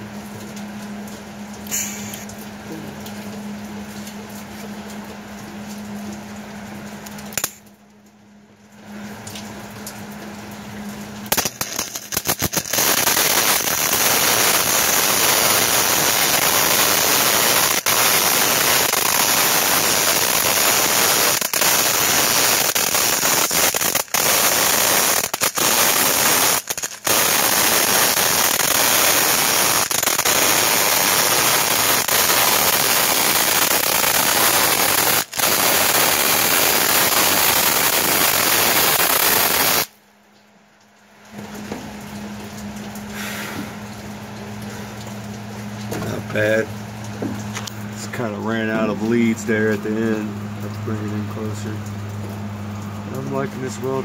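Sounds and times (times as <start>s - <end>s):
welding arc crackling: 1.6s - 2.4s, 7.0s - 7.7s, 10.8s - 40.0s
welder low hum: 1.6s - 3.1s, 11.2s - 39.9s.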